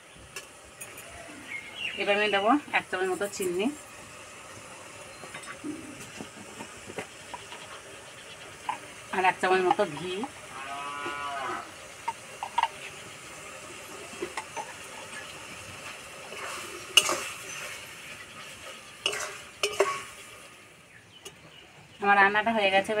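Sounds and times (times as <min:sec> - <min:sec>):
food sizzling in ghee: 0:00.0 - 0:23.0
cow mooing: 0:10.5 - 0:11.7
metal spatula scraping pan: 0:16.3 - 0:20.4.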